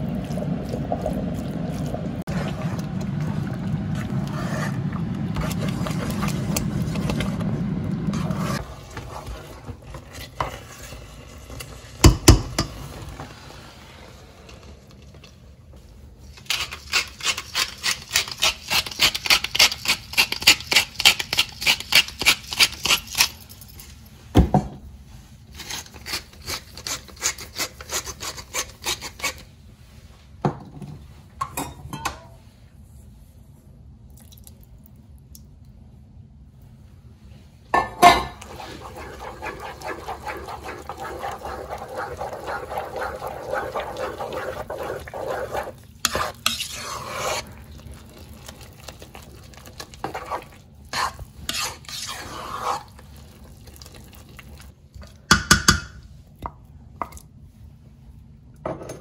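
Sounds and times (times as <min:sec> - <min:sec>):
light scrapes: 0:38.4 - 0:47.4.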